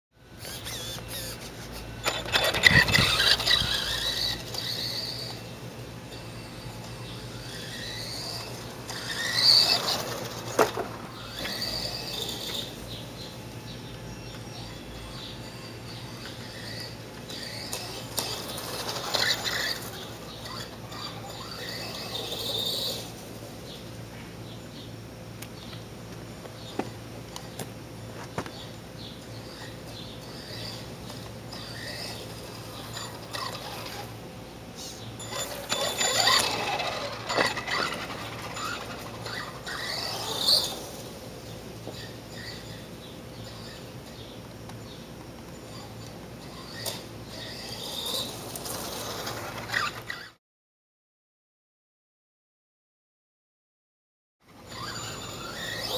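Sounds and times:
toy truck electric motor running: 0.3s - 13.8s, 14.4s - 23.6s, 29.4s - 50.4s, 54.5s - 55.9s
faint chirping: 11.1s - 25.9s, 26.6s - 50.4s.

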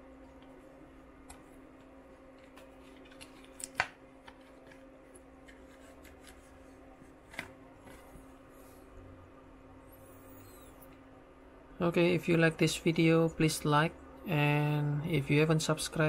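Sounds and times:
faint steady hum: 0.0s - 16.0s
plastic sleeve rustling and clicking: 1.2s - 8.3s.

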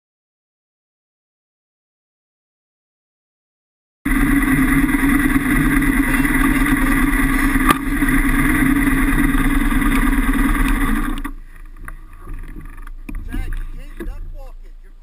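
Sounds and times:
motorcycle engine running: 4.1s - 14.8s.

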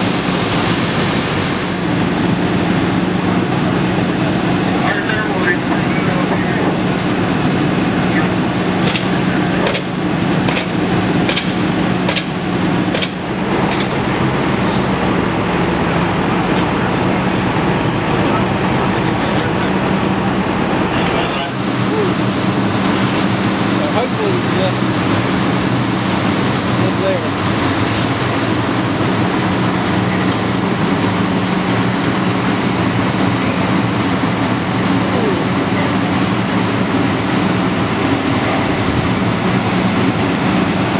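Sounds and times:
fire engine pump running: 0.0s - 40.9s
regular sharp click: 8.8s - 9.9s, 10.5s - 10.7s, 11.3s - 14.0s.

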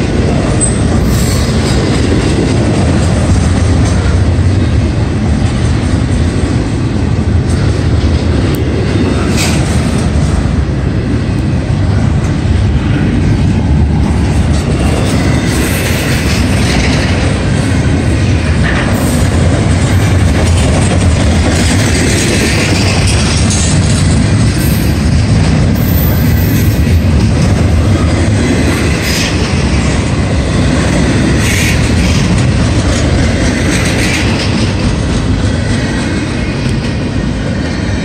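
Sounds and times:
freight train wheels rumbling: 0.0s - 38.0s
train wheels clickety-clack: 0.0s - 38.0s.

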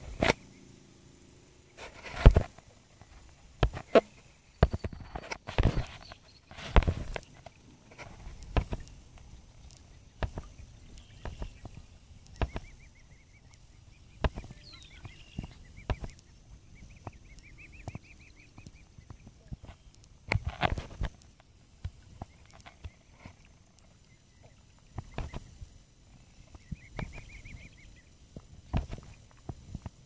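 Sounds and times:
bird chirping trill: 9.8s - 20.0s.

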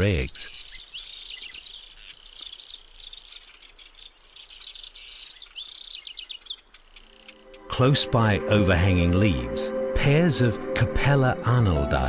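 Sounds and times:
small birds chirping: 0.0s - 9.7s
high insect trill: 1.2s - 7.7s.

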